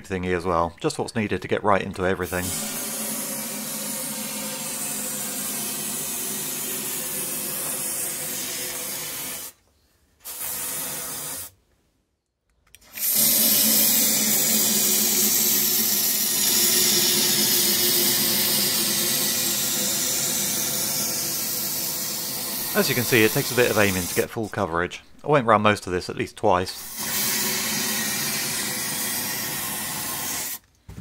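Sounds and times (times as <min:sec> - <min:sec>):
aerosol can spraying hiss: 0:02.3 - 0:09.6, 0:10.2 - 0:11.6, 0:12.9 - 0:24.3, 0:26.8 - 0:30.6.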